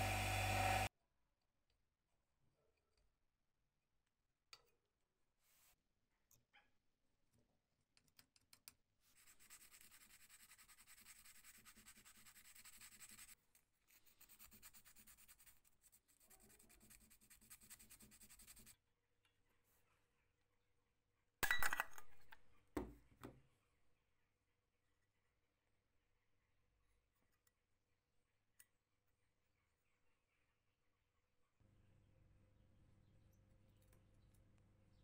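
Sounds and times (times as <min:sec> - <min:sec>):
sandpaper rubbing on brass: 0:09.1 - 0:18.8.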